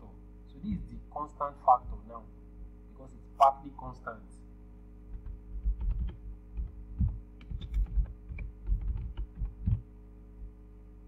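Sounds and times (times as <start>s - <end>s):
computer keyboard typing: 5.1s - 9.8s.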